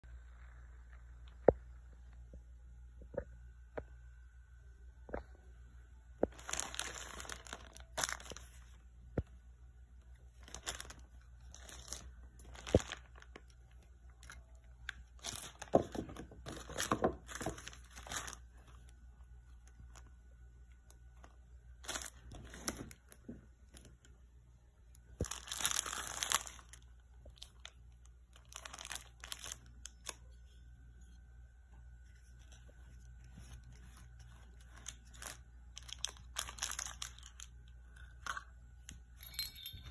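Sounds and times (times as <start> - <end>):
plastic wrapping crinkling: 6.2 - 8.8, 10.3 - 20.1, 20.8 - 24.1, 24.9 - 30.6, 32.0 - 38.3.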